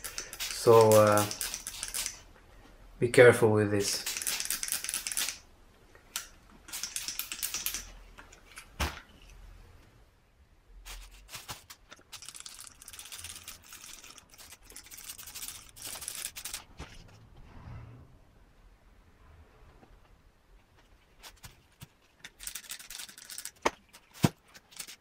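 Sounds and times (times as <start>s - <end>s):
spray bottle hissing spurts: 0.0s - 2.2s, 6.7s - 7.8s.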